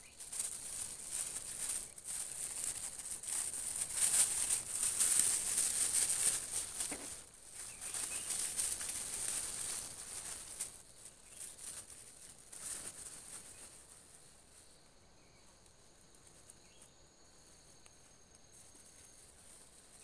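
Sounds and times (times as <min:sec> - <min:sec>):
plastic bag rustling: 0:00.0 - 0:14.7.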